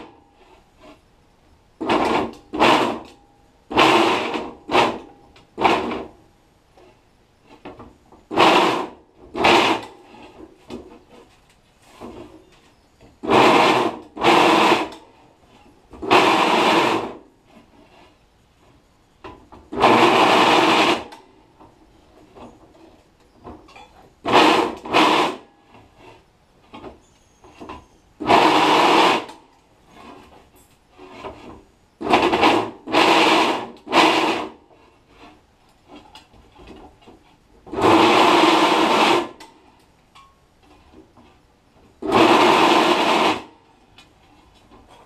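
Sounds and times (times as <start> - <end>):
drill press cutting aluminium: 19.8 - 21.2, 37.8 - 39.4, 42.0 - 43.5.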